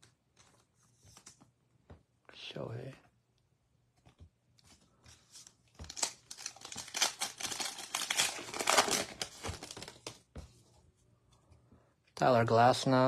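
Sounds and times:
card pack wrapper crinkling and tearing: 0:05.8 - 0:10.2.

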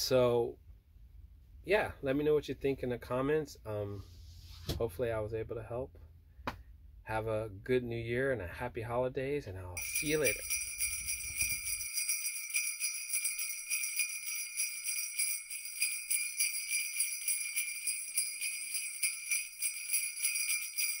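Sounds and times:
sleigh bells jingling: 0:09.8 - 0:21.0.

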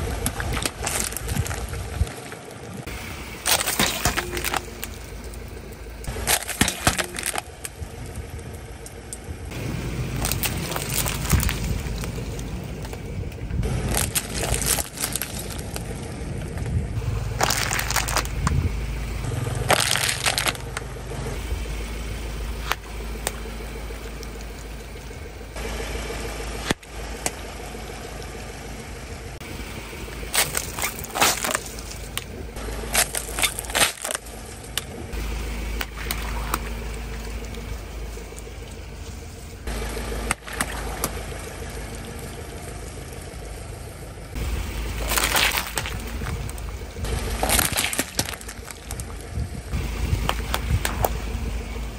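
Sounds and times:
car engine running: 0:00.0 - 0:51.9
water beads crushing and popping: 0:06.1 - 0:07.8, 0:10.1 - 0:13.0, 0:13.8 - 0:15.9, 0:17.4 - 0:18.6, 0:19.6 - 0:20.9, 0:30.2 - 0:34.9, 0:44.9 - 0:49.3.

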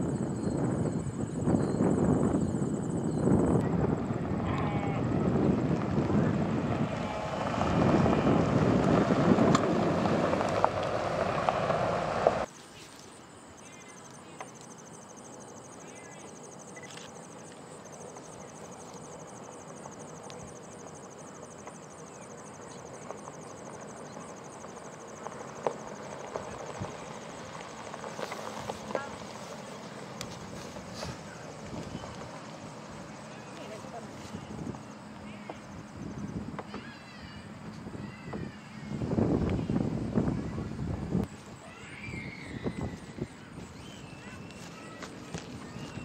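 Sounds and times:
cars driving past on gravel: 0:03.7 - 0:12.6, 0:16.4 - 0:38.0, 0:41.2 - 0:46.0
tyres crunching on gravel: 0:04.8 - 0:13.1, 0:16.8 - 0:35.8, 0:42.8 - 0:46.0.

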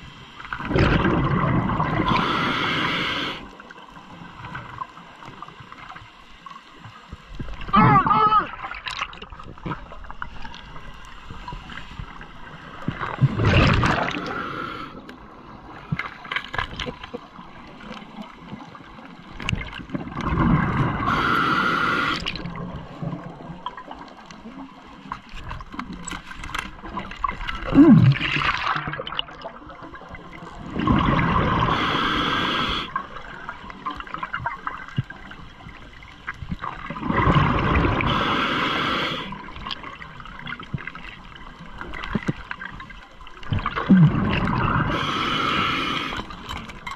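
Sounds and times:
gurgling exhaled bubbles: 0:00.4 - 0:03.5, 0:12.8 - 0:15.0, 0:19.4 - 0:23.8, 0:26.9 - 0:35.3, 0:36.5 - 0:41.0, 0:43.4 - 0:46.6
regulator inhale hiss: 0:02.0 - 0:03.6, 0:14.0 - 0:15.1, 0:21.0 - 0:22.4, 0:31.6 - 0:33.0, 0:38.0 - 0:39.4, 0:44.9 - 0:46.5.

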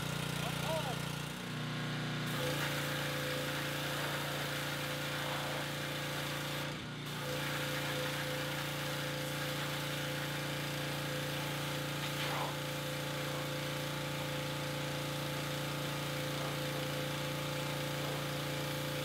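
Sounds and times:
small gas engine running: 0:00.0 - 0:19.0
high-pressure spray hissing: 0:02.3 - 0:12.6.

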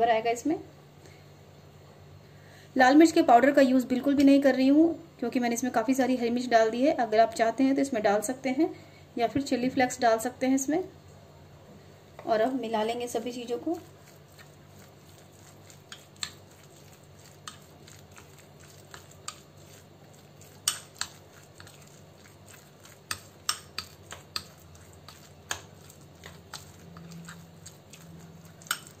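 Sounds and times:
spoon stirring thick batter: 0:12.2 - 0:29.0.

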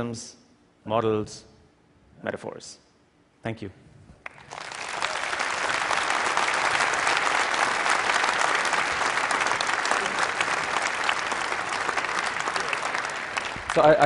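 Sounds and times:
large audience clapping: 0:04.2 - 0:14.0.

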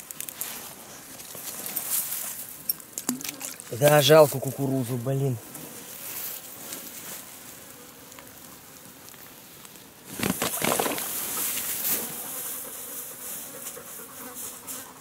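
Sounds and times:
rustling and clicking handling noise: 0:00.0 - 0:03.7, 0:05.5 - 0:12.1
insects buzzing: 0:00.0 - 0:15.0.

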